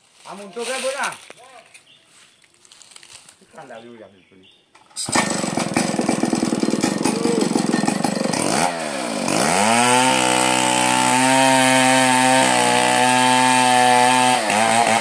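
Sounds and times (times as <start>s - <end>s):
chainsaw revving: 5.0s - 15.0s.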